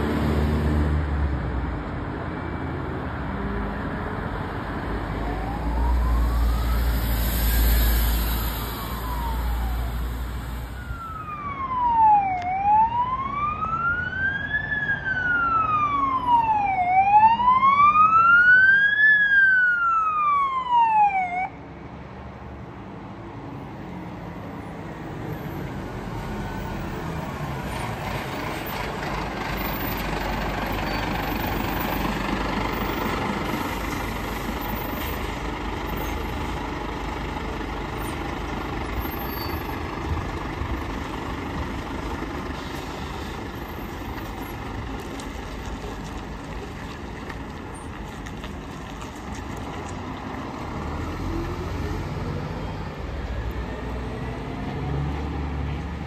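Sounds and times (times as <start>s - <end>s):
fire truck engine driving past: 0.0s - 56.0s
fire engine siren wailing: 4.9s - 21.6s.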